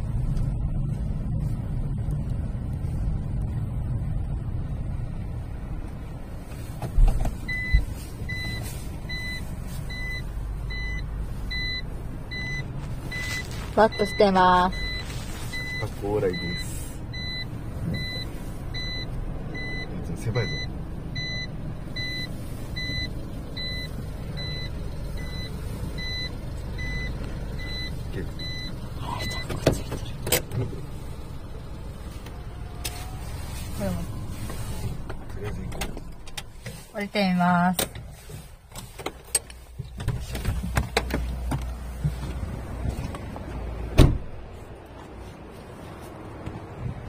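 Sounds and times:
car low rumble: 0.0s - 47.0s
car reverse warning beeping: 7.2s - 37.9s.

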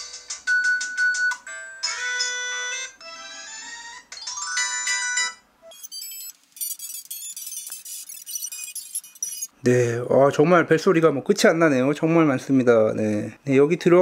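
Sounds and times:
polyphonic ringtone melodies: 0.1s - 9.5s.

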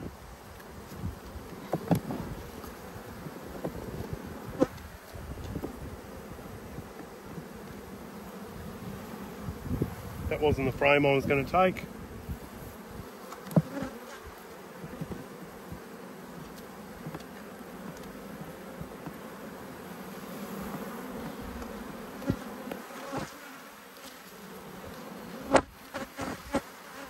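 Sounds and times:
honeybees buzzing: 0.0s - 27.0s
knocks of hive tool on frames: 1.6s - 2.3s, 13.2s - 14.2s, 20.6s - 23.5s, 24.9s - 26.7s.

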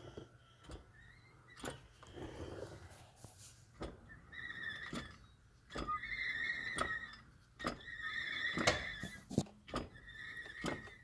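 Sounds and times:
drivetrain squealing: 0.6s - 2.0s, 3.7s - 11.0s.

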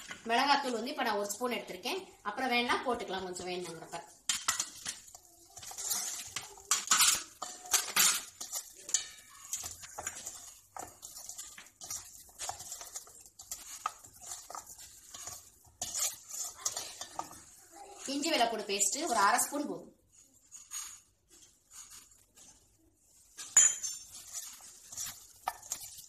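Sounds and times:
chicken pieces clattering in metal bowl: 4.3s - 19.5s.

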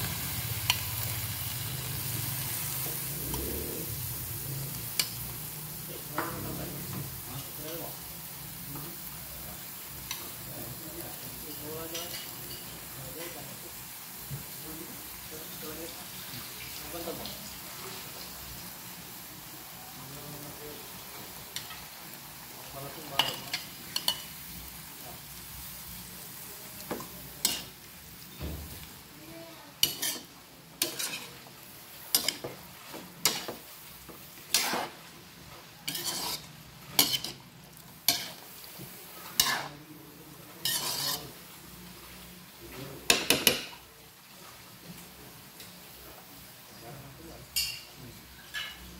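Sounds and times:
vegetables sizzling in a wok: 0.0s - 48.9s
utensil scraping a wok: 23.0s - 28.9s, 29.7s - 44.6s.

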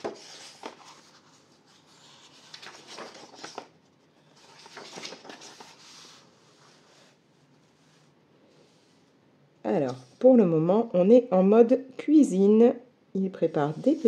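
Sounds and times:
paper pages rustling: 0.0s - 8.1s, 13.6s - 14.0s.

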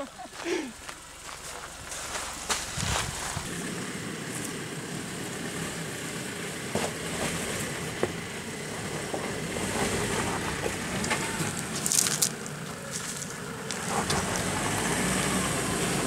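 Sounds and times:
engine running low: 0.0s - 16.0s
tyres crunching on stone: 0.9s - 3.5s, 10.5s - 14.5s.

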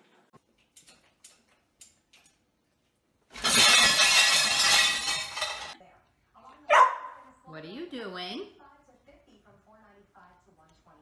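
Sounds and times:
dishes clattering in rack: 3.3s - 5.8s.

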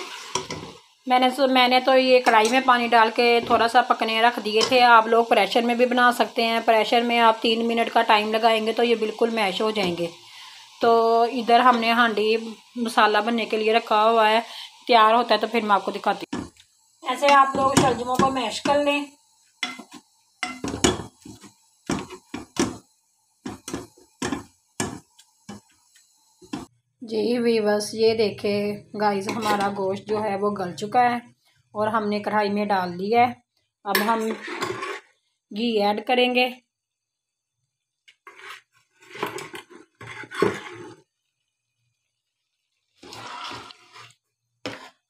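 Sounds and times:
potato masher knocking metal pot: 17.3s - 18.9s, 19.6s - 22.8s
metal ladle scraping metal pot: 29.2s - 30.2s, 34.0s - 35.2s, 38.1s - 41.1s, 43.0s - 45.0s.

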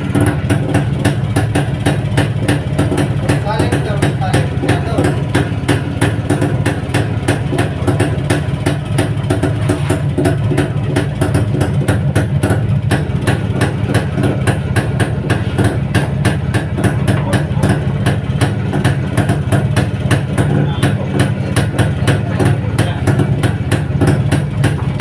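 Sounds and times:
motorcycle engine idling: 0.0s - 25.0s.

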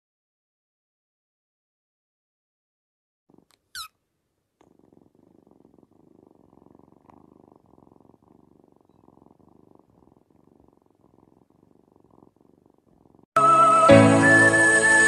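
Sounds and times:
kitten purring: 3.3s - 13.4s.

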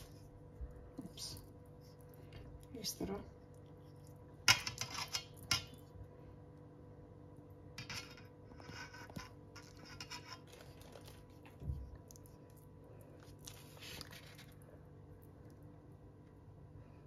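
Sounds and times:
wet scraping of meat on skewer: 8.5s - 11.6s.

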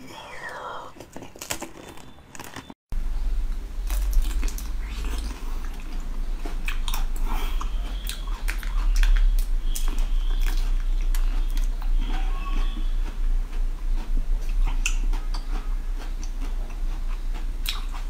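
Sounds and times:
steady low hum: 2.9s - 18.0s
chewing jelly candy: 3.9s - 18.0s.

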